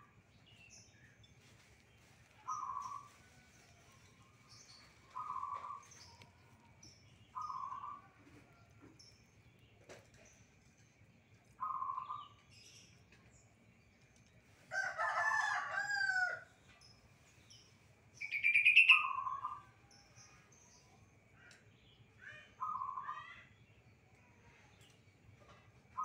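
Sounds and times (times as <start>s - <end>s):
rooster crowing: 14.7s - 16.5s.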